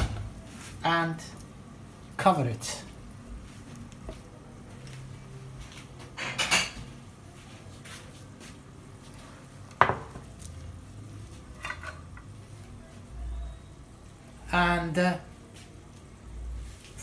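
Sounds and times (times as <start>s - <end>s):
crockery clatter: 6.2s - 6.9s.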